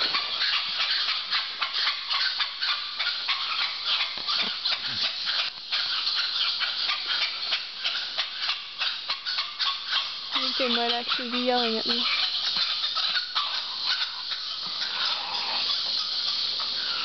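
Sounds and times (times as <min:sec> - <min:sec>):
howler monkeys howling: 0:00.0 - 0:17.0.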